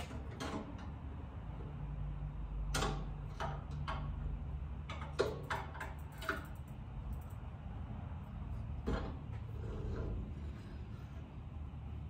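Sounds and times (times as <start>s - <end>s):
bike tray clicks and knocks: 4.8s - 6.6s.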